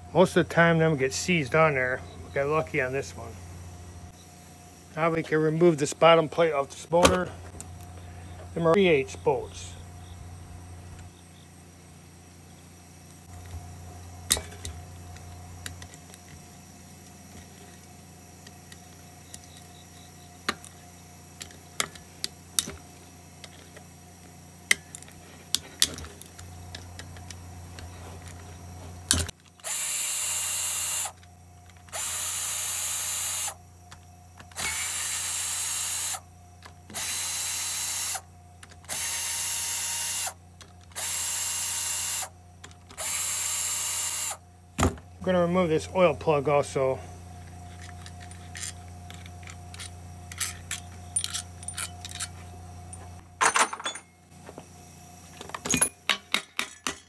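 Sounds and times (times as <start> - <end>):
cordless power driver running: 13.1 - 44.5.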